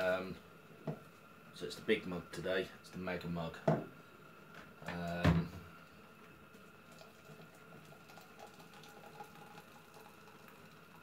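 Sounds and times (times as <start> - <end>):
water pouring from a kettle: 6.5 - 11.0.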